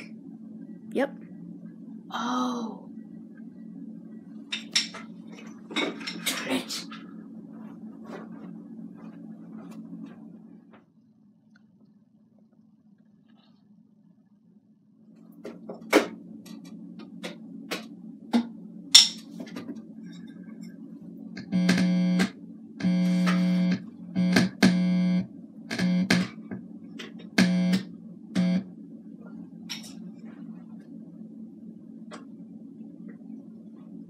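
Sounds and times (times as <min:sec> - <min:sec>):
steady low hum: 0:00.0 - 0:34.0
loud electrical buzz: 0:21.4 - 0:26.6, 0:27.3 - 0:28.7.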